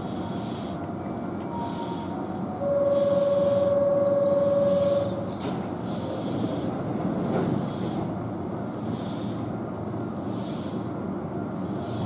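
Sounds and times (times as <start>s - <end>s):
single-pitched warning tone: 0.9s - 5.4s.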